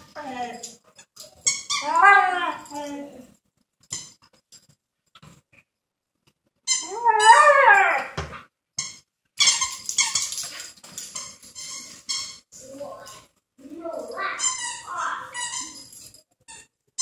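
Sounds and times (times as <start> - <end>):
squeaky toy squeaking: 1.3 - 2.8, 6.6 - 7.4, 8.8 - 12.6, 14.1 - 17.0
dog howling: 1.8 - 2.8, 6.8 - 8.2.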